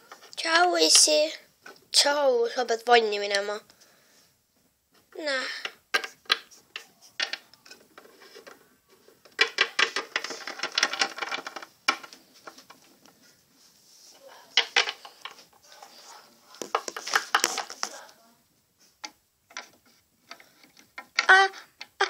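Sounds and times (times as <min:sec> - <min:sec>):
plastic toys clattering on wood floor: 0:05.5 - 0:13.3, 0:14.5 - 0:18.1, 0:19.0 - 0:22.0.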